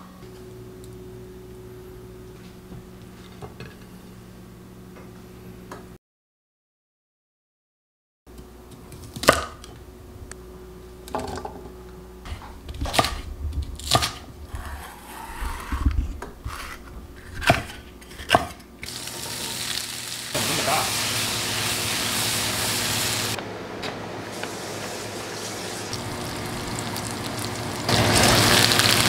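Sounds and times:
vegetables sizzling in a wok: 18.8s - 23.4s, 24.1s - 29.0s.

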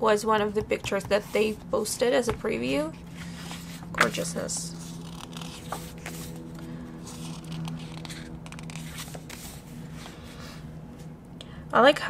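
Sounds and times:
quiet background music: 0.0s - 12.0s
photobook pages turning: 3.0s - 10.6s.

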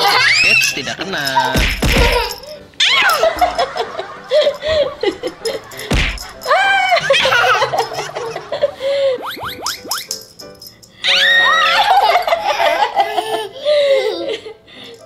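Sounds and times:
person giggling: 3.2s - 9.5s, 11.8s - 14.6s
high-pitched laugh: 6.4s - 9.7s, 11.2s - 14.6s.

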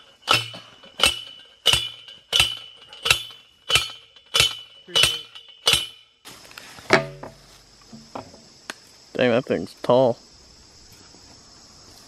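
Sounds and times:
post driver clanking on metal post: 0.0s - 6.1s, 6.9s - 7.4s.

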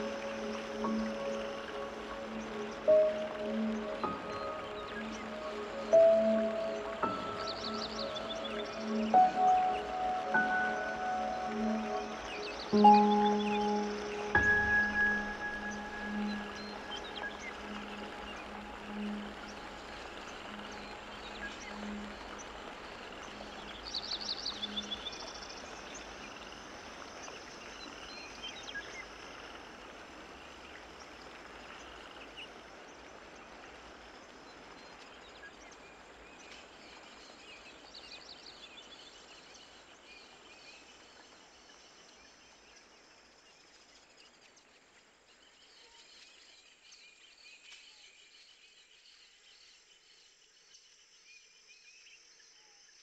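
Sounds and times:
faint steady hiss: 0.0s - 53.0s.

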